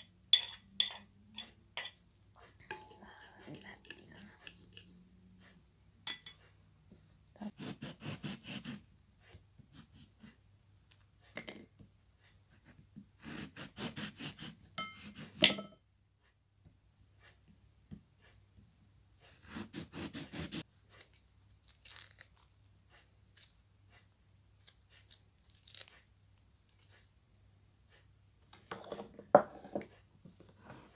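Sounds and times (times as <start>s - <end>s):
knife sawing through lemon peel: 7.5s - 10.4s, 13.2s - 15.4s, 19.2s - 21.2s.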